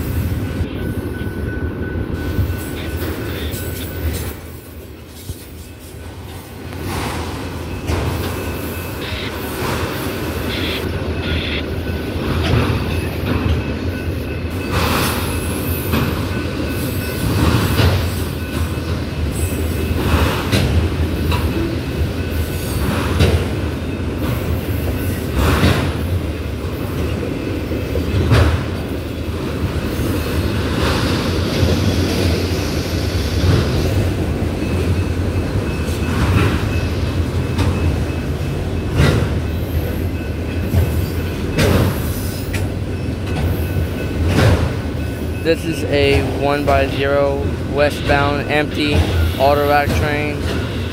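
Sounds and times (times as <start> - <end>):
steel wheels rumbling on rail: 0.0 - 50.9
wheels clacking over rail joints: 33.4 - 50.9.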